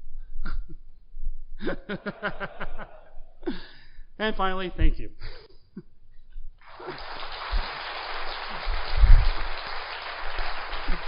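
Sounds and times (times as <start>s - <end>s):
audience applauding: 6.6s - 11.0s.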